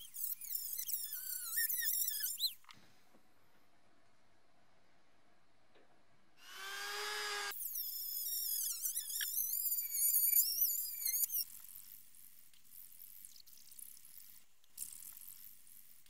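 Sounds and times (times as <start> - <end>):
rotary tool whining on metal: 0.0 - 2.6, 6.4 - 16.0.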